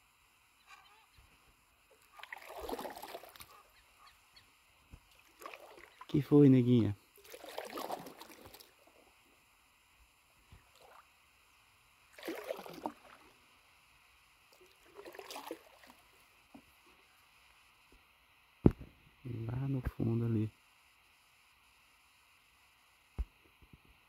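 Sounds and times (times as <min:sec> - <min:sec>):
paddle splashing in water: 0:01.9 - 0:03.7, 0:05.0 - 0:06.1, 0:07.2 - 0:08.8, 0:12.1 - 0:13.3, 0:14.6 - 0:16.6.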